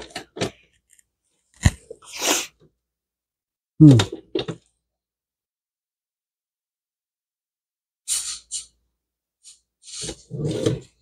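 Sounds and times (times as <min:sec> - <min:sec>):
man humming: 0:03.8 - 0:04.1.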